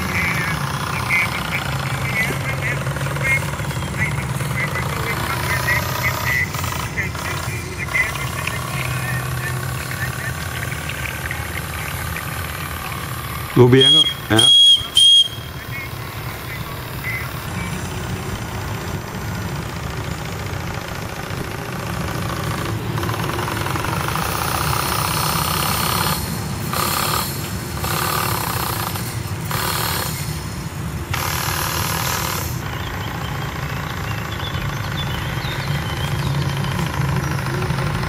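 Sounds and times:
model steam engine knocking: 0.0 - 30.4, 31.1 - 38.0.

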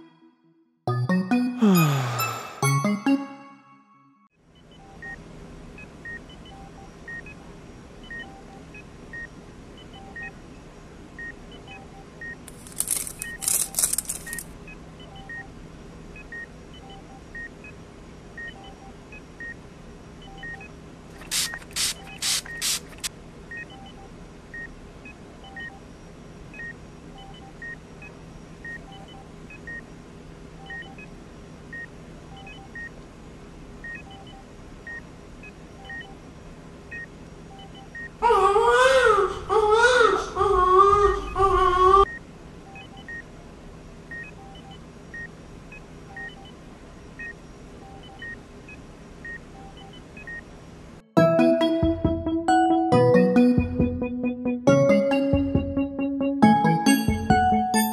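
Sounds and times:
heart rate monitor beeping: 5.8 - 7.4, 8.0 - 10.4, 11.2 - 15.5, 20.2 - 22.8, 23.5 - 25.8, 26.5 - 29.8, 30.6 - 31.1, 31.7 - 32.9, 33.8 - 36.2, 36.9 - 38.2, 42.1 - 43.2, 44.1 - 46.6, 47.2 - 50.4, 53.4 - 57.9.

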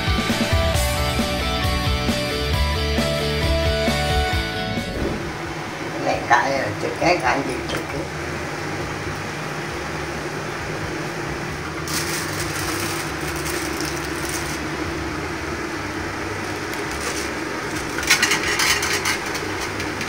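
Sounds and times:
steady low hum: 3.6 - 20.0
hot oil sizzling and crackling: 11.8 - 20.0.

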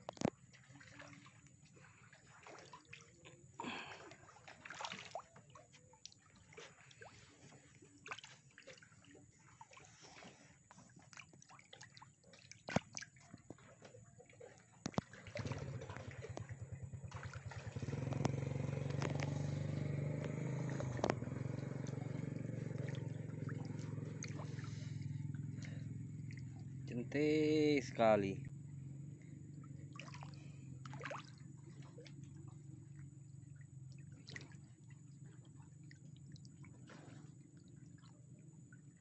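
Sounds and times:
fish splashing at water surface: 0.1 - 26.8, 29.5 - 32.5, 33.9 - 34.7
small engine running: 15.5 - 26.9.

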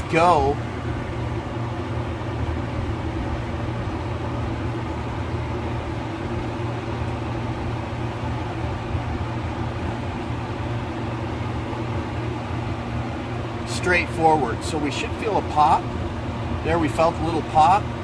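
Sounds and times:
low machine hum: 0.0 - 18.0.

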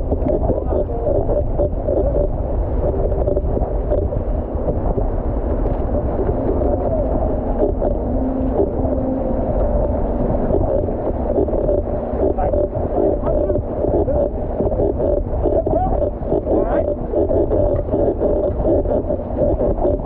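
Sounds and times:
rushing churning water: 0.0 - 20.0
wind buffeting microphone: 0.0 - 20.0
wavering tone: 5.8 - 17.1.

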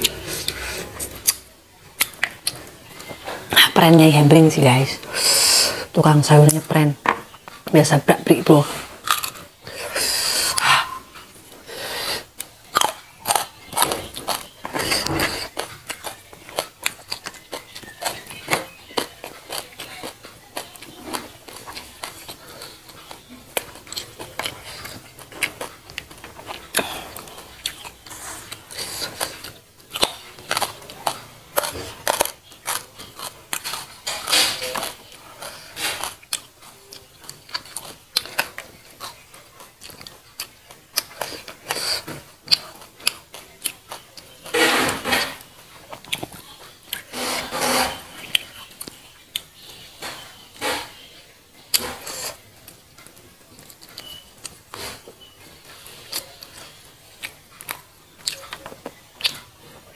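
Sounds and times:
chewing and lip smacks: 12.4 - 44.5, 45.9 - 47.1, 51.7 - 59.8.

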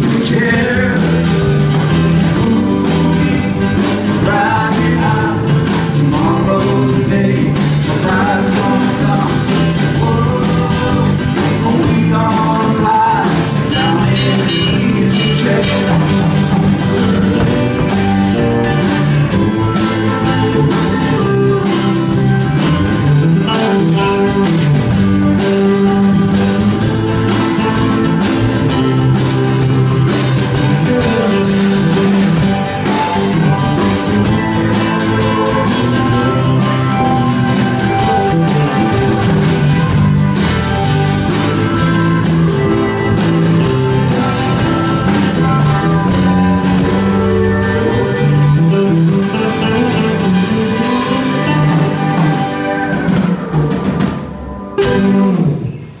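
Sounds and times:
acoustic guitar: 0.0 - 56.0
bass guitar: 0.0 - 56.0
drums: 0.0 - 56.0
pedal steel guitar: 0.0 - 56.0.

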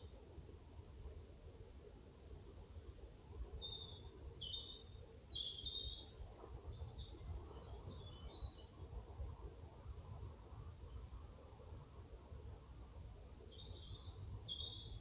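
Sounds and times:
songbird chirping and warbling: 3.6 - 6.1, 13.5 - 15.0.

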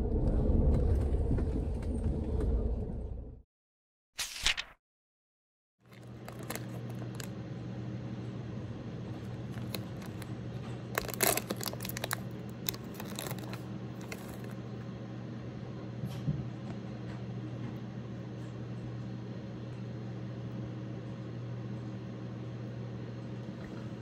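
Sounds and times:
plastic wrapper crinkling and tearing: 5.9 - 7.3, 9.3 - 10.3, 10.9 - 14.6
steady low hum: 5.9 - 24.0.

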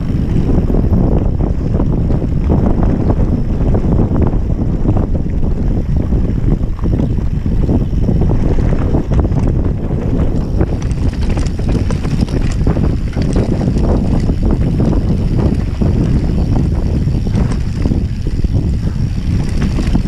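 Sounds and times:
bike tyres rumbling on dirt: 0.0 - 20.0
wind on microphone: 0.0 - 20.0
chain and frame clatter: 10.2 - 20.0.

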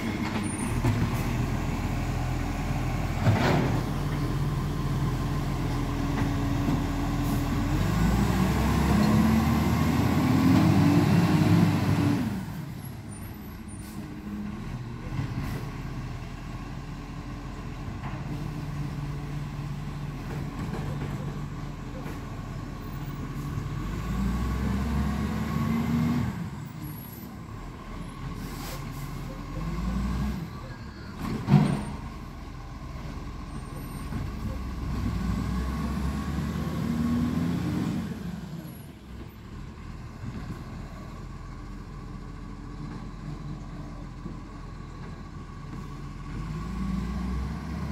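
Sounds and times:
garbage truck engine revving: 6.2 - 12.6, 34.2 - 38.4.

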